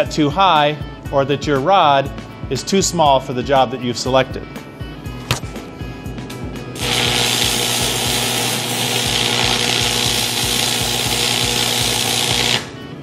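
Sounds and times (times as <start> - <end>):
welding arc crackling and hissing: 6.8 - 12.8.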